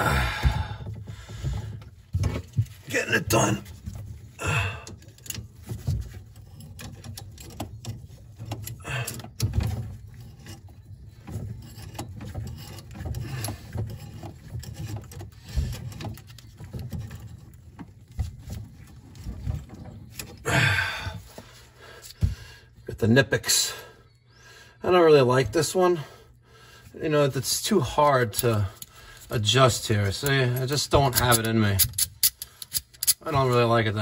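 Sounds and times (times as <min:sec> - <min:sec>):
low handling bumps: 0:00.0 - 0:04.8.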